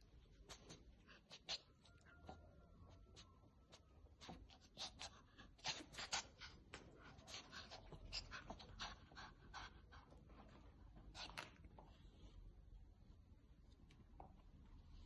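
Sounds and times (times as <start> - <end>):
dog panting: 4.2 - 10.7.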